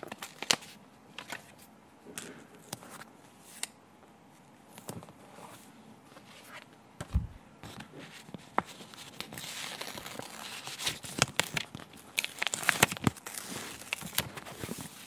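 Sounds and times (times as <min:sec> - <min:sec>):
backing sheet crinkling: 0:06.5 - 0:15.0
soft low thump: 0:07.0 - 0:07.4.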